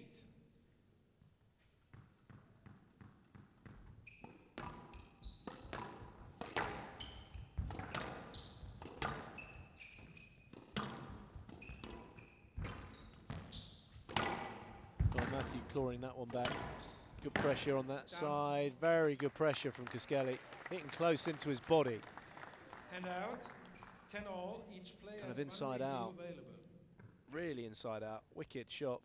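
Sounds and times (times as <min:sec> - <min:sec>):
shoes squeaking on court floor: 0:01.2 - 0:17.8
squash ball smacking: 0:01.9 - 0:17.7.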